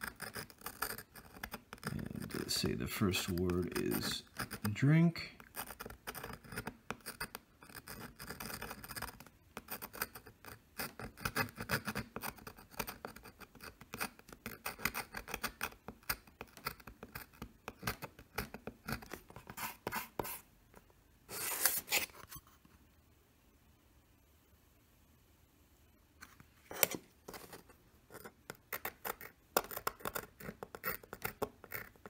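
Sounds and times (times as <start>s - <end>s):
metal pen scratching aluminum plate: 0.0s - 4.8s, 5.4s - 20.4s, 26.7s - 32.0s.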